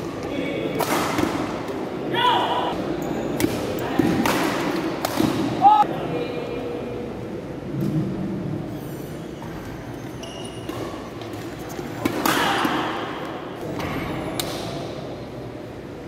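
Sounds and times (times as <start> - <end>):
murmur of voices echoing: 0.0 - 8.8, 11.1 - 16.0
rackets hitting shuttlecock: 0.7 - 1.8, 3.4 - 5.6, 12.0 - 13.5.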